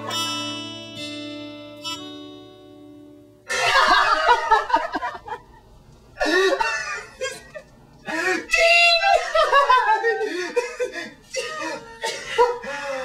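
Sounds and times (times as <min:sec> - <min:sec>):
acoustic guitar chord ringing: 0:00.0 - 0:04.9
loud laughter: 0:03.5 - 0:05.5, 0:06.2 - 0:13.0.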